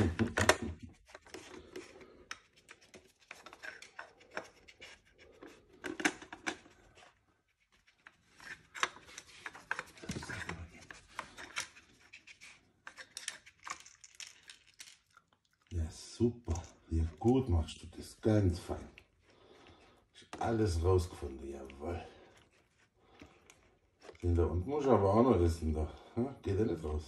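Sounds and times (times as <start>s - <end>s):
plastic clicks and scrapes: 0.0s - 15.1s.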